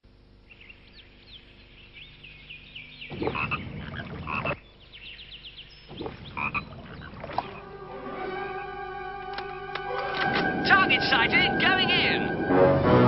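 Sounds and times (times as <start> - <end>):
frogs croaking: 0.1 - 8.0
high chirping calls: 0.5 - 7.2.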